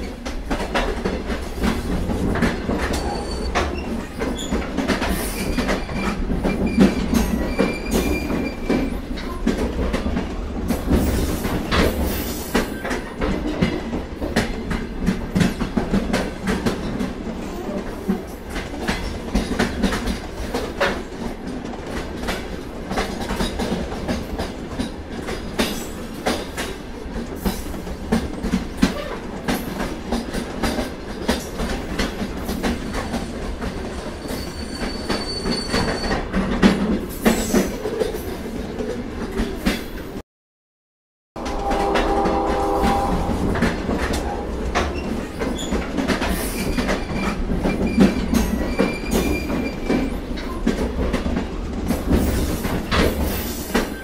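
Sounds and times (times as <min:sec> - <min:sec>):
freight train rumbling past: 0:00.0 - 0:34.4, 0:41.4 - 0:54.0
high wheel squeal: 0:34.2 - 0:36.2.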